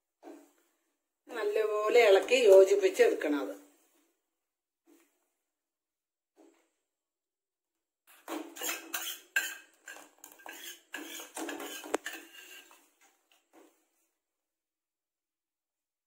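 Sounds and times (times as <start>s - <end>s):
ladle scraping a metal saucepan: 8.1s - 13.0s.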